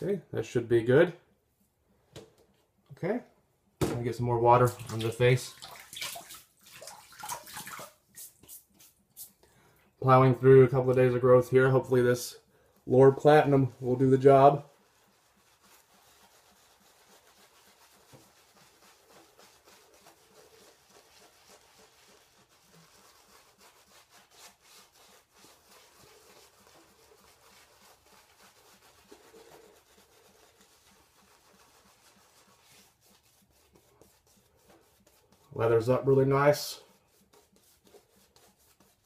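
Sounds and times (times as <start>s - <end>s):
shaving brush swishing on stubble: 4.6s - 9.4s, 11.0s - 39.0s.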